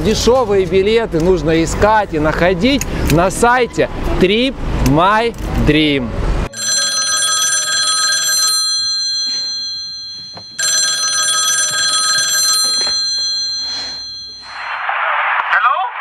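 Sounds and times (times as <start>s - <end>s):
telephone bell ringing: 6.5s - 14.7s.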